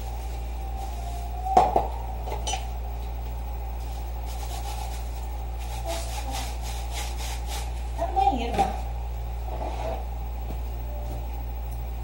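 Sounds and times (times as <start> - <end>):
steady low hum: 0.0 - 12.0
sponge scrubbing a glass: 3.8 - 8.0.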